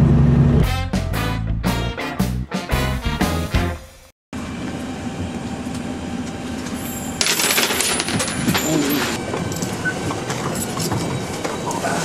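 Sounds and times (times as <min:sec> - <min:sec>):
bus interior hum: 0:00.0 - 0:00.9, 0:04.4 - 0:07.2, 0:08.2 - 0:12.0
background music: 0:00.6 - 0:04.1
coins clattering: 0:06.8 - 0:09.2.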